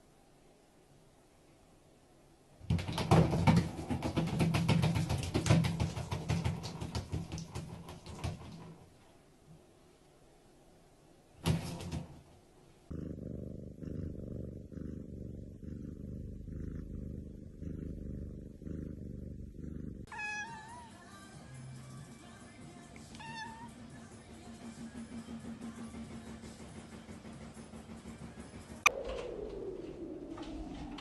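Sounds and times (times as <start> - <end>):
cat purring: 12.8 - 31.0
cat meowing: 20.0 - 21.0, 23.1 - 23.7.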